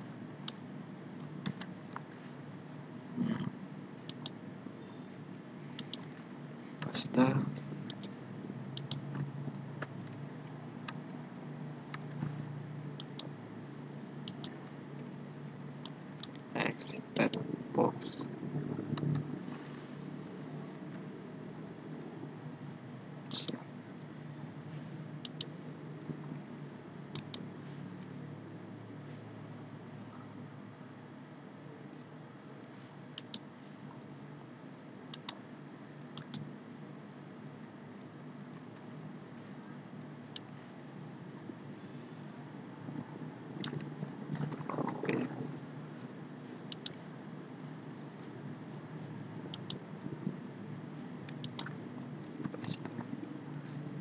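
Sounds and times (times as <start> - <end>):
steady low hum: 0.0 - 54.0
computer mouse clicks: 1.2 - 2.2, 4.0 - 5.1, 5.7 - 6.2, 7.8 - 8.2, 8.8 - 10.2, 13.0 - 13.3, 14.2 - 14.6, 18.9 - 19.3, 25.2 - 25.5, 27.1 - 27.4, 33.2 - 33.5, 35.1 - 35.4, 36.1 - 36.5, 43.6 - 45.2, 46.7 - 47.0, 49.5 - 49.8, 51.2 - 51.8.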